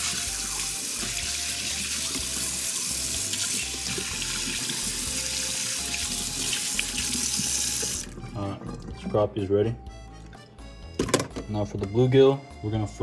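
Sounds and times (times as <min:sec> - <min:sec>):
tap water running into steel sink: 0:00.0 - 0:08.1.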